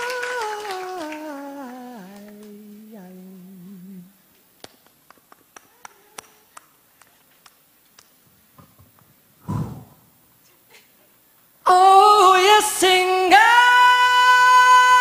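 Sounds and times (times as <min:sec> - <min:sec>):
man singing wordless note: 0:00.0 - 0:04.2.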